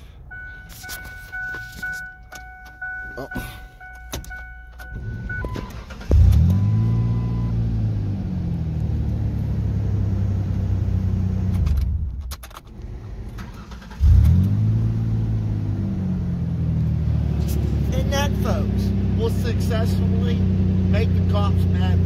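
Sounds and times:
truck engine starting and idling: 0:00.0 - 0:22.0
ignition key clicks: 0:00.6 - 0:06.5, 0:11.5 - 0:12.9.

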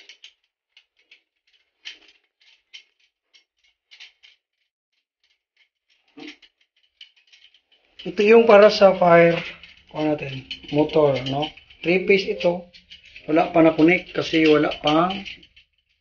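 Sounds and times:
plastic pipe fittings scraping: 0:05.6 - 0:16.0.

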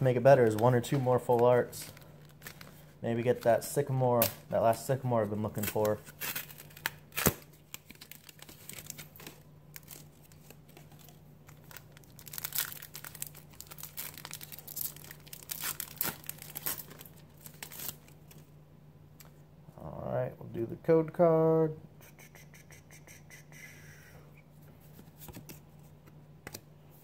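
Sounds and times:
plastic packaging tearing and crinkling: 0:05.4 - 0:18.4.

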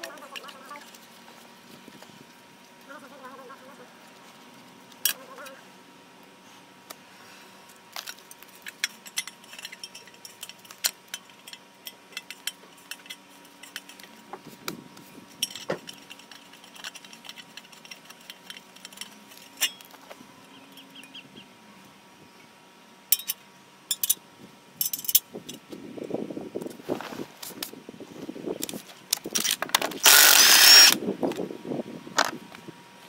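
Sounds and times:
metallic clinks of tools and bolts: 0:08.0 - 0:14.1, 0:15.4 - 0:20.0, 0:23.1 - 0:24.2, 0:24.8 - 0:25.6.

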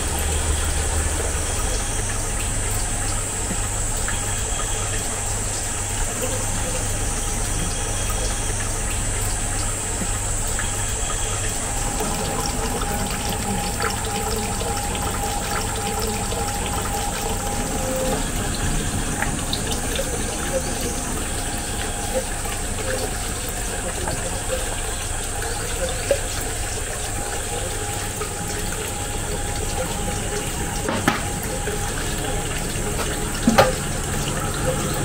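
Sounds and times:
water pouring into stone trough: 0:00.0 - 0:35.0.

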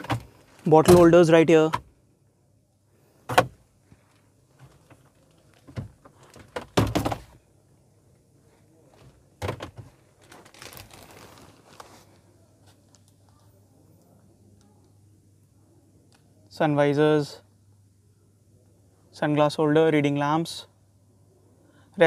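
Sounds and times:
soft rustle: 0:08.4 - 0:13.6.

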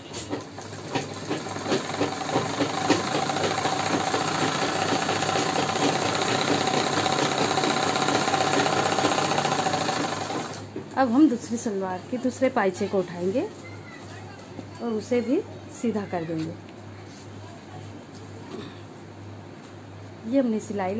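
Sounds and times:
sewing machine stitching: 0:00.2 - 0:10.6.

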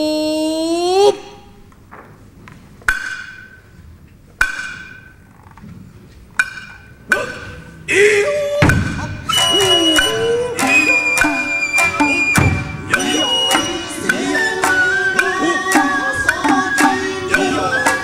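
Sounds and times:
drummers shouting calls: 0:07.1 - 0:18.0
hand drum beats: 0:08.6 - 0:18.0.

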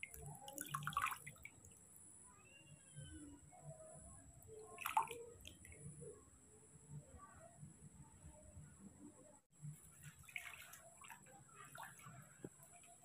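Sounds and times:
water splashing: 0:00.0 - 0:01.8, 0:04.7 - 0:05.8, 0:09.8 - 0:13.0
water dripping in basin: 0:00.0 - 0:02.0, 0:04.4 - 0:05.8.

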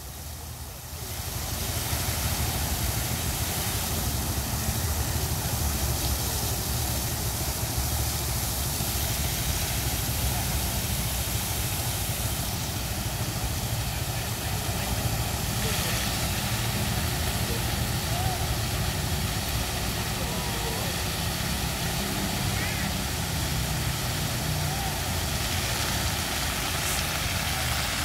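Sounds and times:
fountain water splashing: 0:00.0 - 0:28.0.

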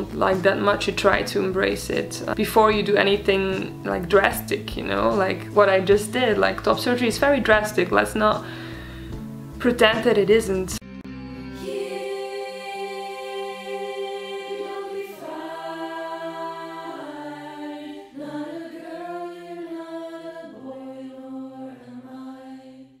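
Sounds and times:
slow song with long sung notes: 0:10.8 - 0:23.0.

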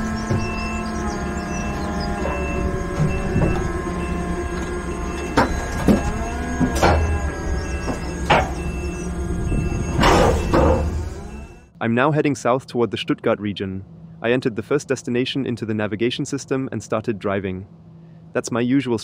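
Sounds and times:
electric drive whining: 0:00.0 - 0:11.7
reversing beeper: 0:00.0 - 0:11.7.

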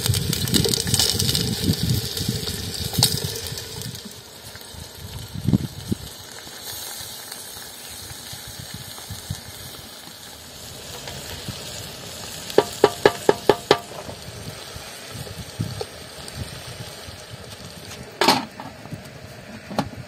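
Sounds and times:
hot oil sizzling: 0:00.0 - 0:20.0
spatula knocking on metal pot: 0:12.6 - 0:13.9.

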